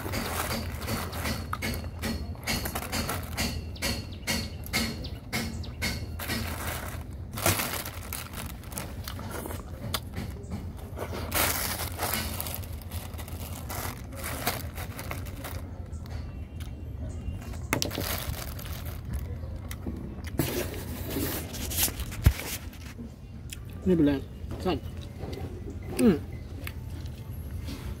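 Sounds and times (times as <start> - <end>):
plastic bags crinkling: 0.0 - 3.7, 5.9 - 16.1, 17.4 - 19.6.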